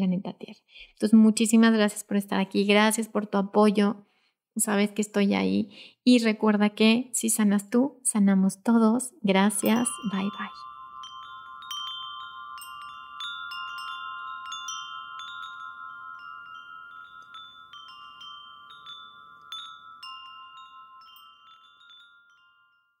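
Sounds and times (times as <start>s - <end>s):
wind chimes ringing: 9.5s - 23.0s.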